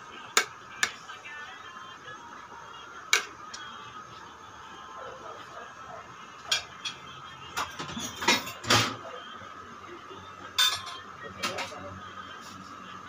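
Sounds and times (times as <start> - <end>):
low background hum: 0.0 - 13.0
metal spoon clinking on pot: 10.6 - 11.0.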